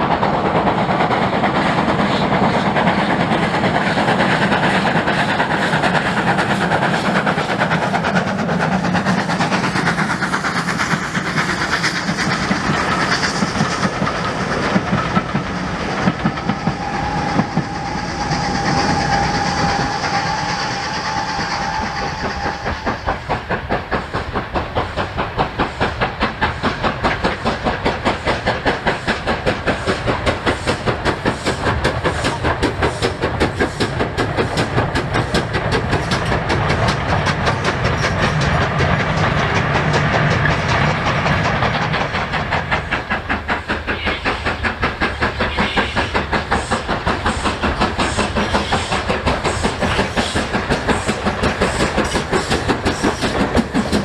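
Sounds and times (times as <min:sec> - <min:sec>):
steam locomotive exhaust beats: 0:00.0 - 0:54.0
train clattering on rails: 0:00.0 - 0:54.0
train whistle: 0:16.6 - 0:23.1, 0:43.9 - 0:44.7, 0:45.4 - 0:46.2.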